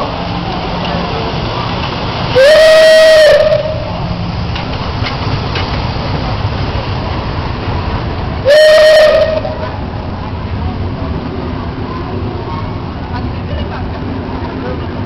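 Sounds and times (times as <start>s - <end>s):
rail clicks: 0.0s - 15.0s
steam locomotive rumble: 0.0s - 15.0s
locomotive whistle blast: 2.4s - 3.9s, 8.4s - 9.6s.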